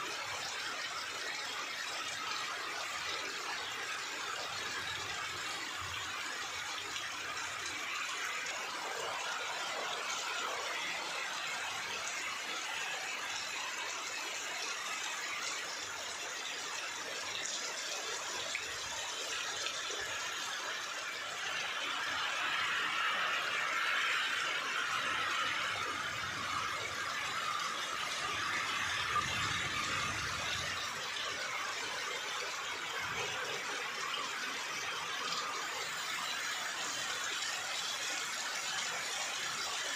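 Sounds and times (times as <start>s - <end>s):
heavy rain on trees: 16.6s - 39.9s.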